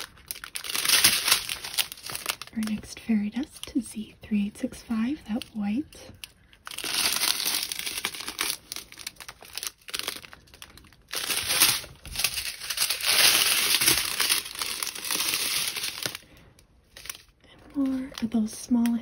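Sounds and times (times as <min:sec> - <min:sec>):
plastic packaging crinkling: 0:00.0 - 0:19.0.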